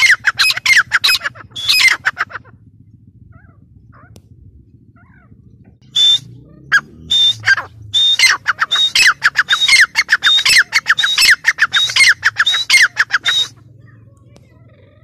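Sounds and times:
francolin calling: 0.0s - 2.6s, 4.9s - 14.0s.

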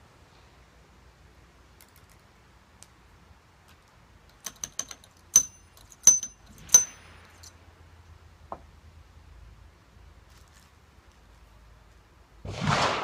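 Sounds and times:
light metallic clicks: 3.6s - 7.6s
ramrod strikes with high ring: 4.5s - 7.4s.

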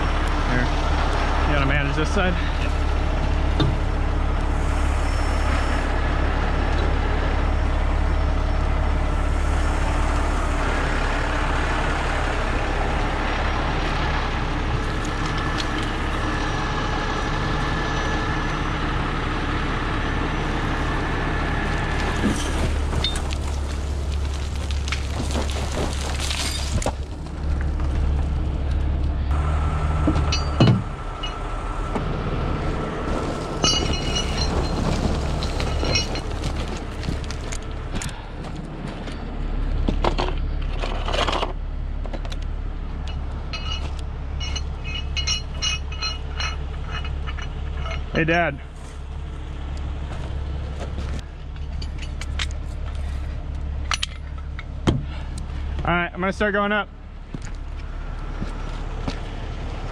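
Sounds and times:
diesel engine droning: 0.0s - 59.9s.

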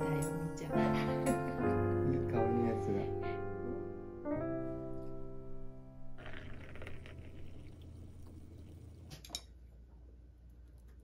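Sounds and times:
drink pouring into glass: 6.2s - 9.2s.

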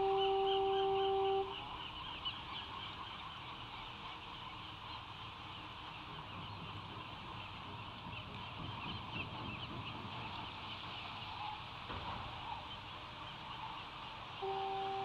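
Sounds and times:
horn blast: 0.0s - 1.6s, 14.4s - 15.0s
seabirds calling: 0.0s - 15.0s.

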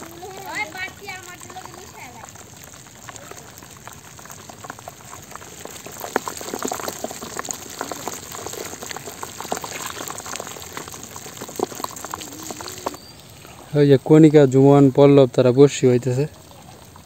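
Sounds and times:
fish flapping in plastic basin: 0.0s - 13.1s.

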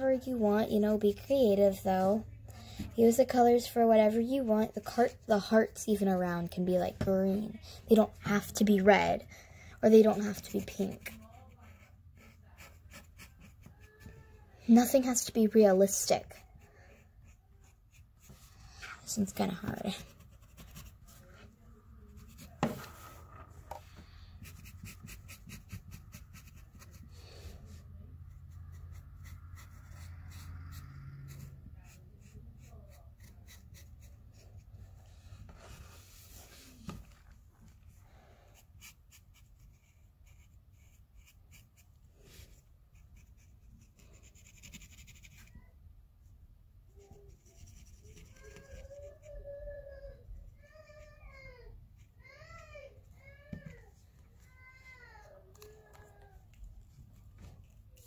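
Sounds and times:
marker scratching on fabric: 9.9s - 14.1s, 14.8s - 36.7s, 38.6s - 45.7s, 46.9s - 49.4s.

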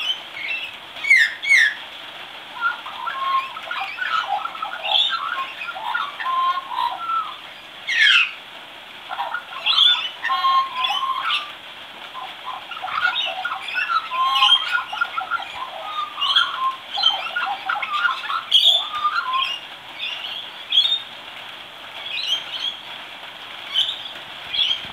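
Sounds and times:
young magpie warbling subsong: 2.6s - 8.4s, 9.1s - 11.5s, 12.2s - 21.0s.

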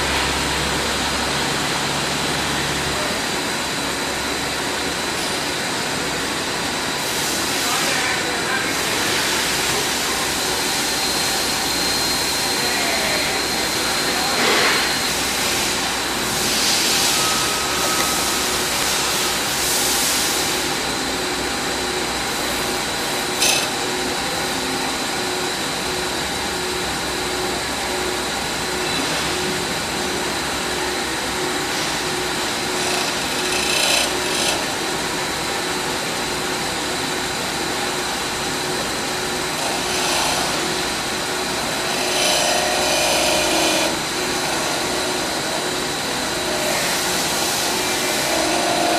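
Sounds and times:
knife grinder hum and hiss: 0.0s - 48.9s
bright grinding noise: 8.8s - 20.8s, 22.4s - 24.2s, 31.6s - 35.1s, 38.8s - 48.9s.

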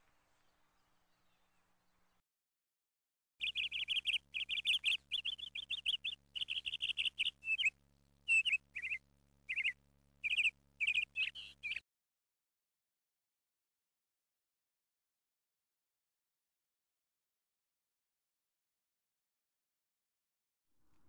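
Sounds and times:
faint steady hum: 0.0s - 2.2s, 3.4s - 11.8s, 20.8s - 21.0s
small birds chirping: 0.0s - 2.2s, 3.4s - 11.8s.

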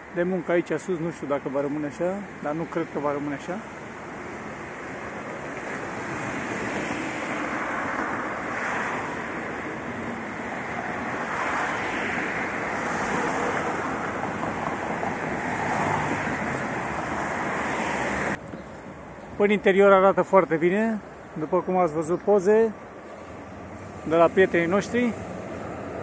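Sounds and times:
cars driving past: 1.2s - 26.0s.

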